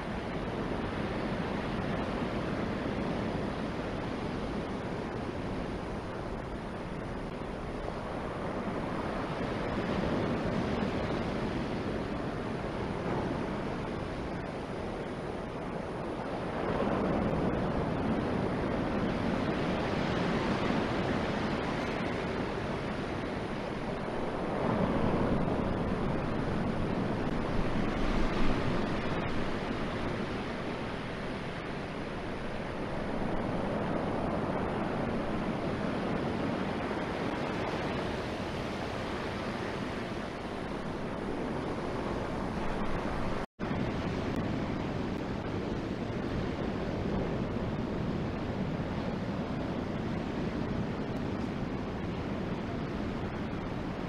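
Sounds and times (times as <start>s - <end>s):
ocean surf breaking: 0.0s - 54.0s
wind: 0.0s - 54.0s.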